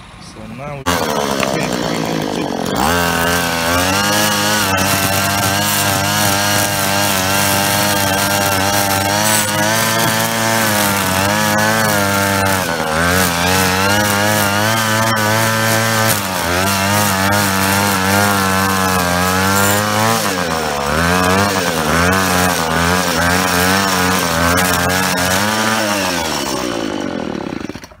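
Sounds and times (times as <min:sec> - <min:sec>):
string trimmer cutting grass: 0:00.8 - 0:28.0.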